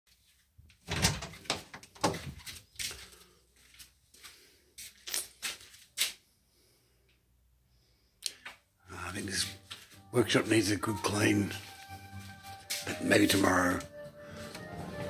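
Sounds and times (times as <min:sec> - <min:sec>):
door opening: 0:00.8 - 0:02.6.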